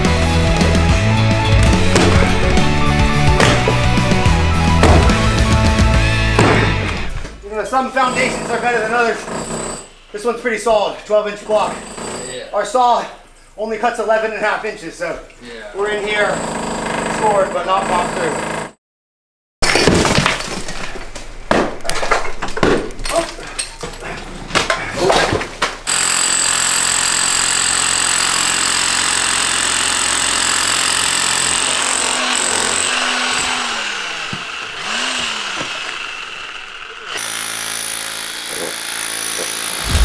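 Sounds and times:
demolition hammer on concrete: 1.5s - 2.6s, 3.3s - 4.0s, 4.7s - 5.4s, 8.0s - 9.9s, 11.5s - 12.4s, 16.3s - 18.7s, 25.3s - 36.3s, 37.1s - 40.0s.

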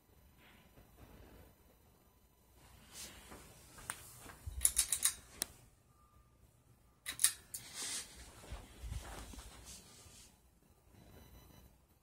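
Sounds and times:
ceiling fan humming: 0.0s - 11.5s
sharp clicks and light rattles: 4.6s - 5.6s.

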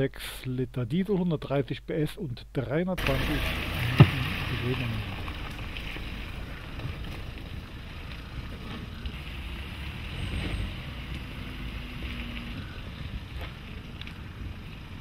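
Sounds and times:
diesel engine at low revs: 3.0s - 15.0s.

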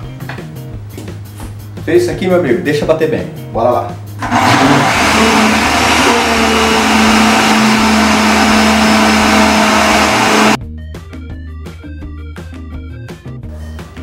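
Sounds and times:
blender whirring: 4.2s - 10.6s.

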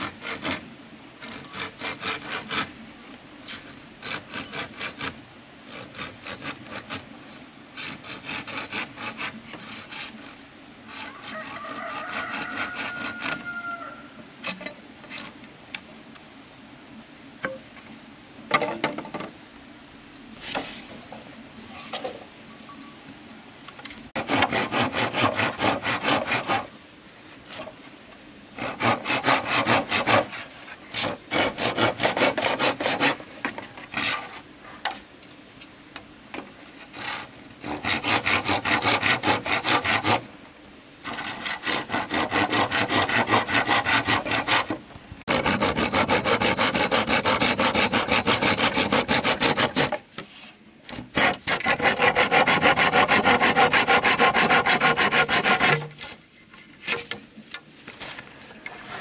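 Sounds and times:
hand saw cutting wood: 0.0s - 2.8s, 3.5s - 7.1s, 7.7s - 13.5s, 24.2s - 26.7s, 28.6s - 34.4s, 36.8s - 40.3s, 41.0s - 57.2s, 58.6s - 59.0s.

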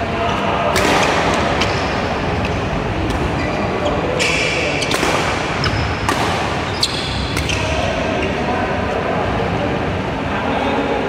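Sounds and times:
rackets striking shuttlecock: 0.7s - 3.4s, 4.2s - 7.8s
shoe squeaks: 3.3s - 5.0s, 5.6s - 8.5s.

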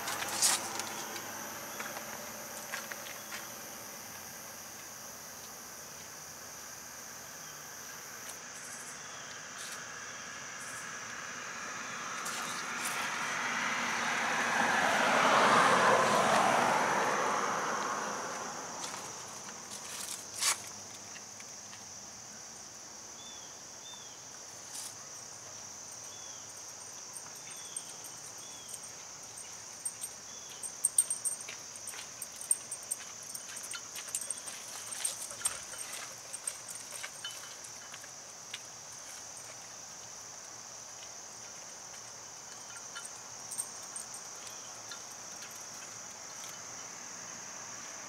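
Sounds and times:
vehicle passing: 0.0s - 4.5s, 10.8s - 19.9s
insects chirring: 0.0s - 48.0s.

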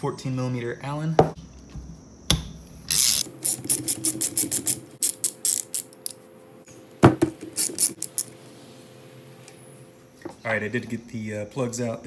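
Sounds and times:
ratchet wrench clicking: 2.9s - 6.2s, 7.6s - 8.3s.

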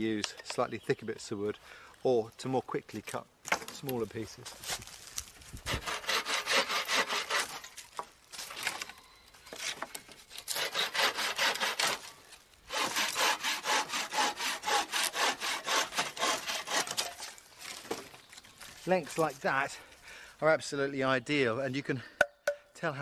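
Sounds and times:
saw cutting through branch: 5.7s - 7.8s, 10.4s - 12.1s, 12.7s - 17.4s.

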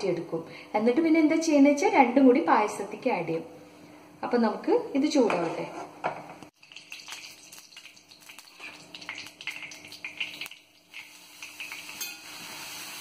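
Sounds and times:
carrot frying: 6.5s - 13.0s
ghee sizzling and popping: 6.5s - 13.0s.

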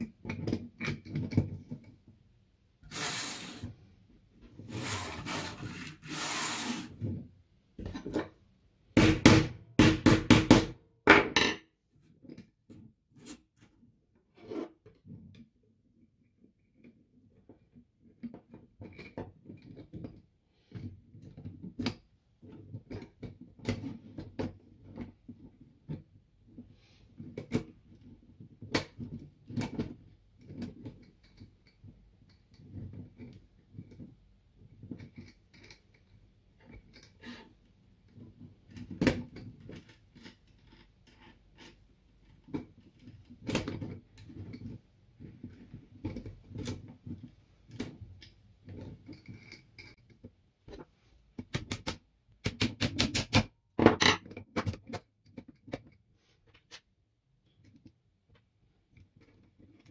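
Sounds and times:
small hard parts knocking and clicking: 27.2s - 59.9s.

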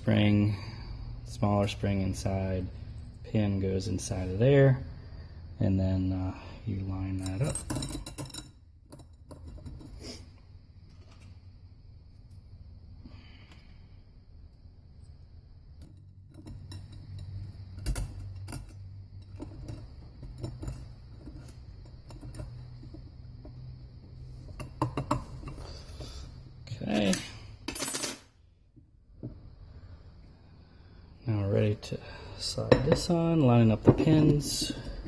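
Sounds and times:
low steady hum: 0.0s - 35.0s
light metal clicks and clinks: 7.1s - 10.0s
metallic rattles: 7.1s - 10.0s.

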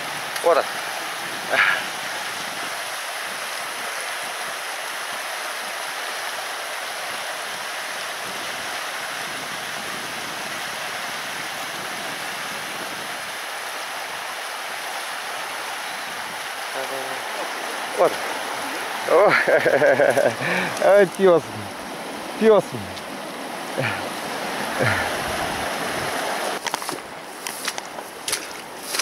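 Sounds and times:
river rushing: 0.0s - 29.0s.

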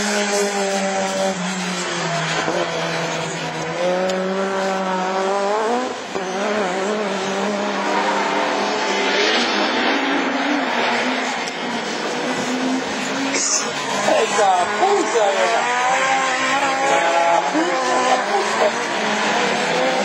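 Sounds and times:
car engines revving hard: 0.0s - 20.0s.

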